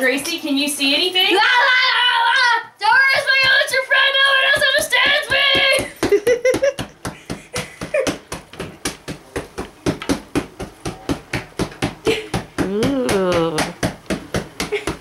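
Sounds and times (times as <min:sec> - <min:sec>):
rapid sharp tapping: 0:04.4 - 0:15.0.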